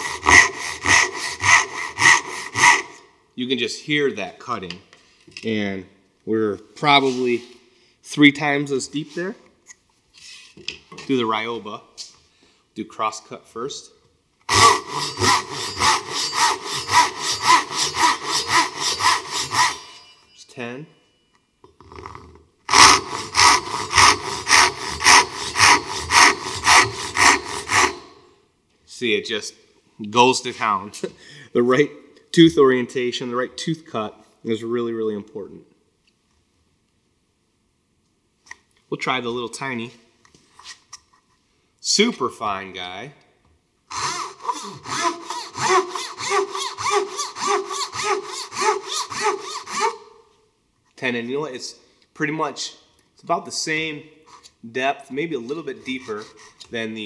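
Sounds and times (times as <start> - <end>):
pull saw ripping wood: 0.0 - 3.0, 14.5 - 20.0, 22.7 - 28.2, 43.9 - 50.0.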